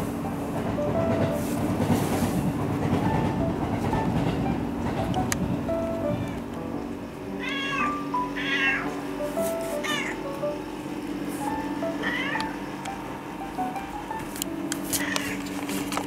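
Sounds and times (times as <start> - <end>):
cat meowing: 7.4 - 9.0, 9.8 - 10.2, 11.9 - 12.6, 15.0 - 15.4.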